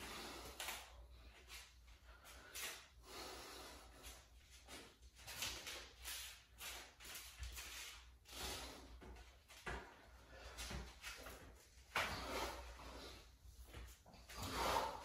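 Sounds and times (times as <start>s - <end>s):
man breathing with exertion: 0.0s - 4.8s, 8.2s - 15.0s.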